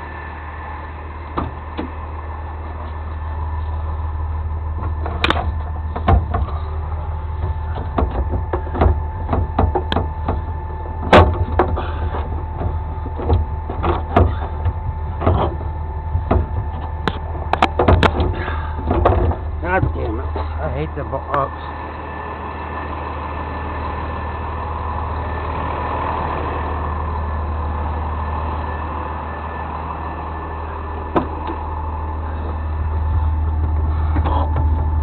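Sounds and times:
faint steady whine: 0.0s - 35.0s
truck engine idling: 0.0s - 35.0s
knocks and clanks: 4.8s - 20.6s, 31.1s - 31.6s, 32.4s - 35.0s.

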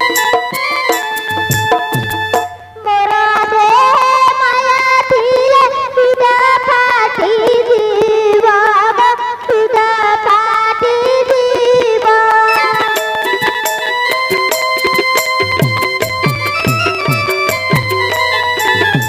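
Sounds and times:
hand-drum strokes: 0.0s - 2.7s, 12.3s - 19.0s
girl singing with vibrato: 2.6s - 13.7s
held instrumental tone: 12.4s - 19.0s.

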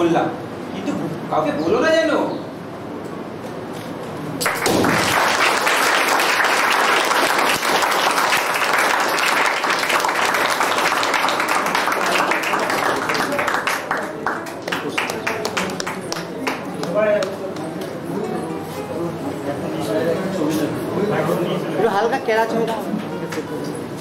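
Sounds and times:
audience applauding: 4.4s - 18.0s.

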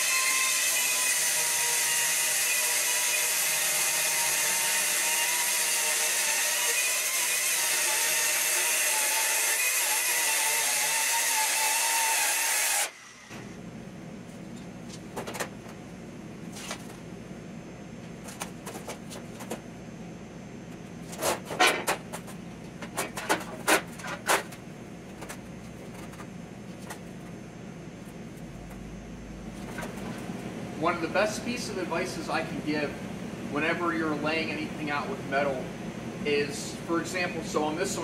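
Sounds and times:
circular saw cutting sheet steel: 0.0s - 13.3s.

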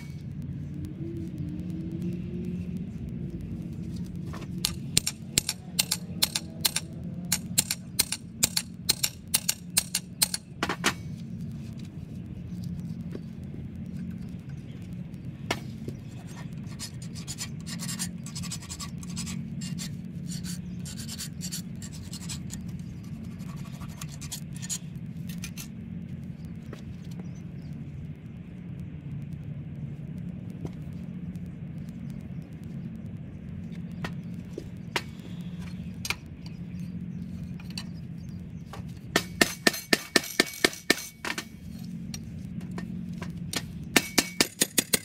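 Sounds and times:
steady low hum: 0.0s - 45.0s
sharp scraping strokes: 15.6s - 25.7s.

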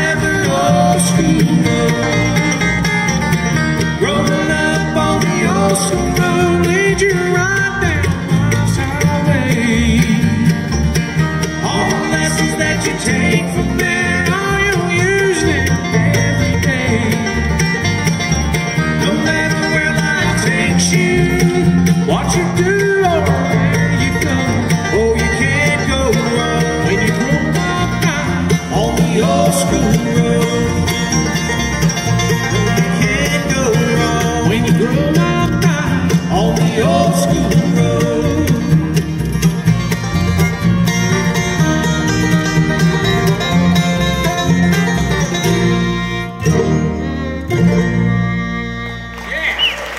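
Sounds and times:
man singing: 0.0s - 2.6s, 3.8s - 10.8s, 11.4s - 17.7s, 18.8s - 31.3s, 32.5s - 39.0s
banjo: 0.0s - 49.7s
electric bass: 0.0s - 49.9s
guitar: 0.0s - 49.9s
mandolin: 0.0s - 49.9s.

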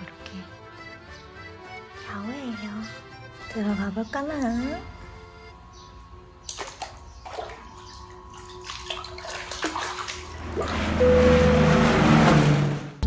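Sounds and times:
feet splashing in water: 6.5s - 10.8s
steady rushing sound: 10.8s - 13.0s.

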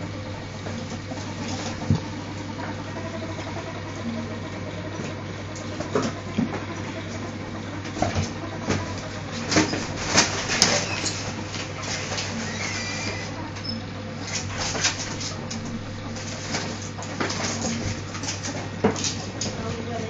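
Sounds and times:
steady low hum: 0.0s - 20.0s
ferrets scuffling and knocking: 4.8s - 20.0s.

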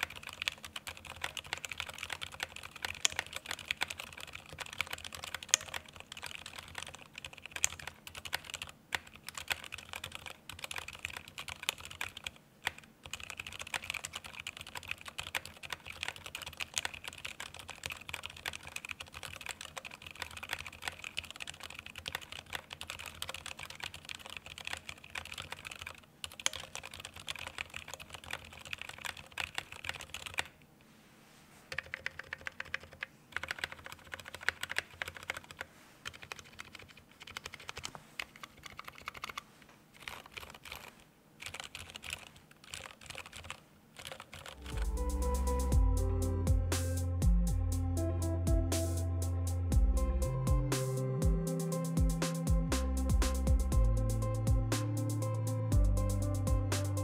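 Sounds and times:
muted keyboard typing: 0.0s - 30.6s, 31.7s - 45.6s.

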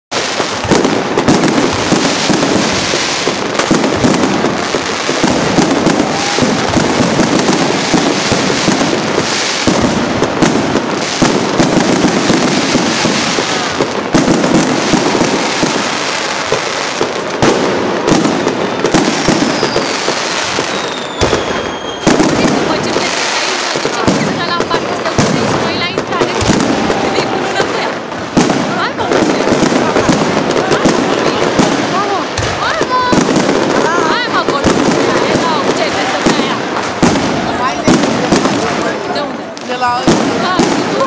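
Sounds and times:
fireworks bursting and crackling: 0.1s - 41.0s
falling whistle: 19.3s - 20.0s, 20.7s - 22.1s.

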